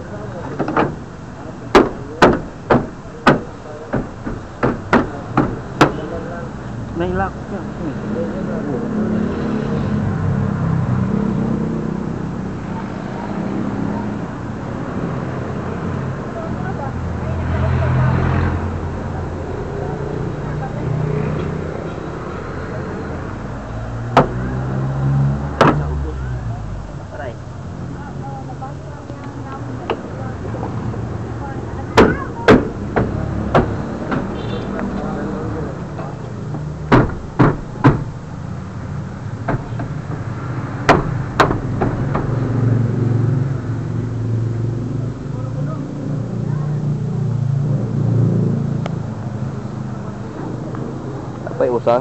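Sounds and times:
sharp knocks and clicks: 0.4s - 1.1s, 1.7s - 6.0s, 24.1s - 24.4s, 25.6s - 25.9s, 32.0s - 35.1s, 35.9s - 38.2s, 39.3s - 42.6s.

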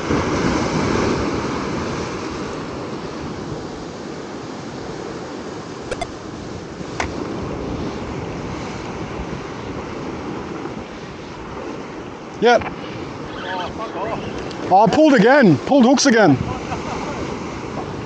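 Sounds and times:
wind on microphone: 0.0s - 15.0s, 16.3s - 18.0s
ocean surf breaking on rock: 0.0s - 18.0s
brief clicks: 5.9s - 6.2s.

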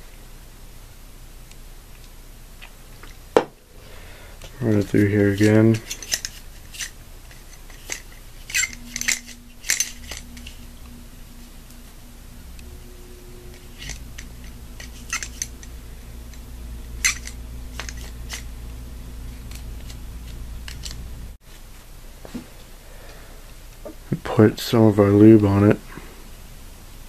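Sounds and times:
faint low hum: 0.0s - 27.0s
metallic clicks and scrapes: 4.4s - 21.1s.

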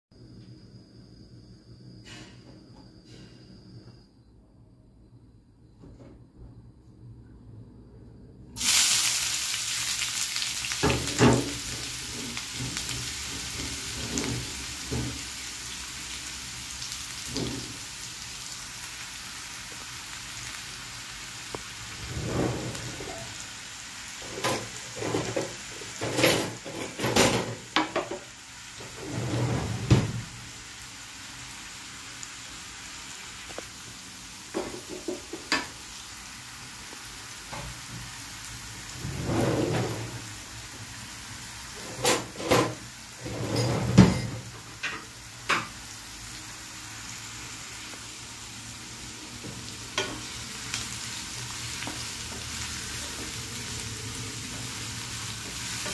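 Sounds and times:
onions sizzling in hot oil: 8.6s - 55.9s
knocks and crackles in pan: 10.7s - 15.4s, 17.3s - 17.8s, 24.2s - 29.0s, 34.5s - 35.8s, 49.4s - 50.9s.

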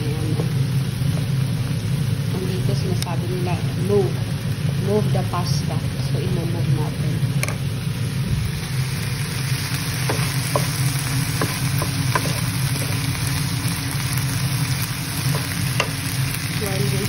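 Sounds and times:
food sizzling in a frying pan: 0.0s - 17.0s
steady low hum: 0.0s - 17.0s
wooden spatula tapping a pan: 10.0s - 13.0s, 15.2s - 16.1s.

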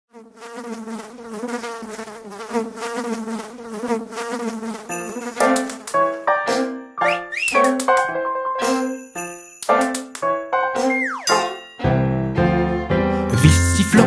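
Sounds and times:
flying insect buzzing: 0.1s - 6.0s
sharp percussive clicks: 5.4s - 6.0s, 7.3s - 8.2s, 9.6s - 10.3s
music with bell-like notes: 8.6s - 9.9s, 11.2s - 12.6s.

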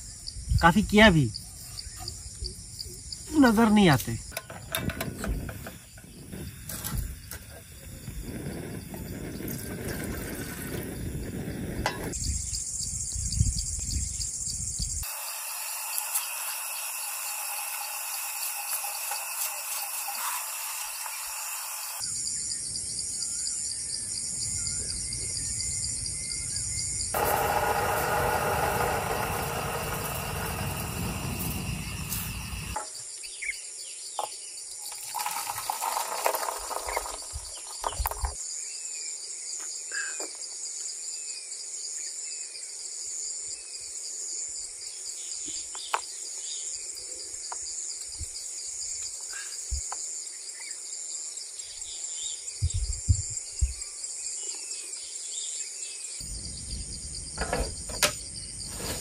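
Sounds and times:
insects chirping: 0.0s - 59.0s.

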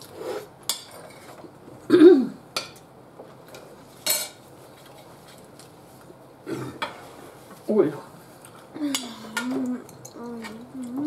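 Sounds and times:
person humming: 8.8s - 11.0s.

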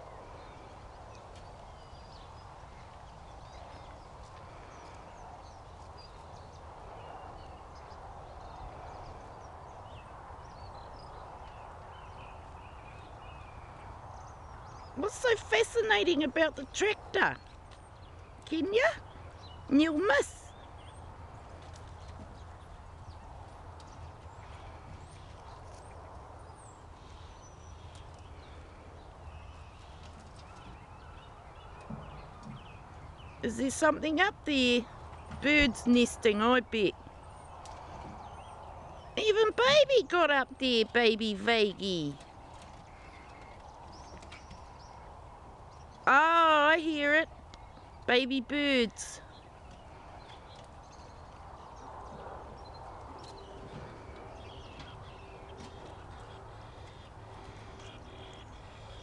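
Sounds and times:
nestling birds chirping: 0.0s - 59.0s
dogs scuffling on tractor: 29.1s - 36.2s, 37.1s - 46.0s, 49.4s - 59.0s.

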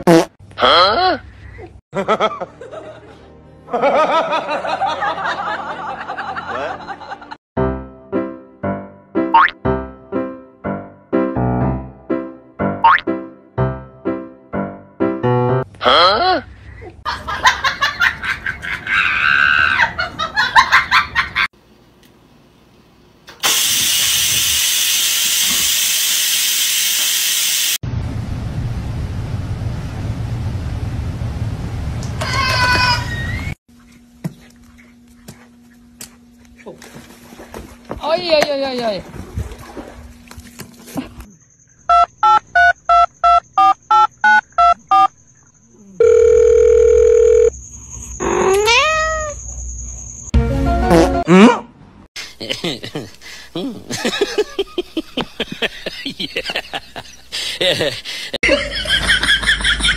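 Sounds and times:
rice cooker venting steam hiss: 23.3s - 27.8s
low steady rumble: 27.8s - 32.3s
steady phone tone: 46.0s - 47.6s.

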